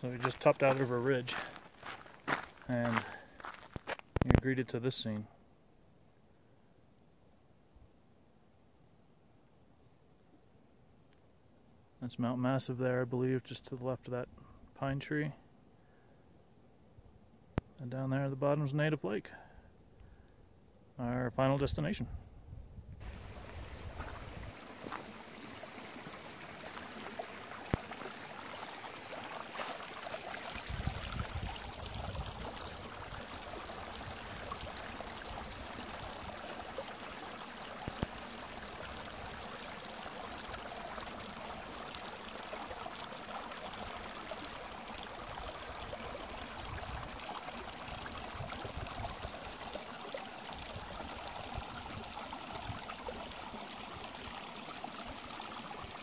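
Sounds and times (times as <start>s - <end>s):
brook running over rocks: 0.0s - 4.4s, 23.0s - 56.0s.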